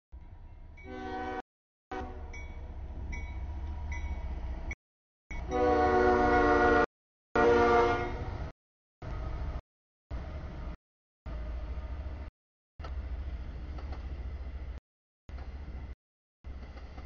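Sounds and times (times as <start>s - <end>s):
train air horn: 0.8s - 2.3s, 5.5s - 8.3s.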